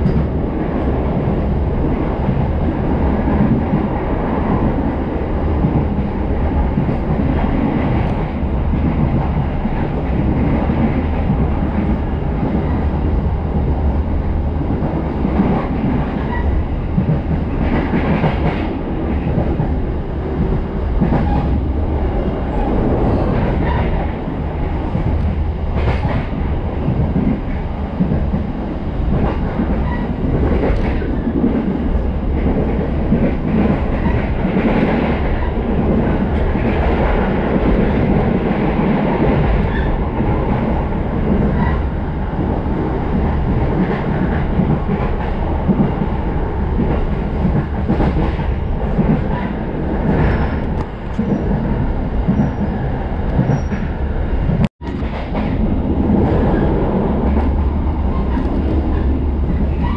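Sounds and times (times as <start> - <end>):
train wheels rumbling: 0.0 - 59.9
rail clicks and knocks: 22.6 - 59.9.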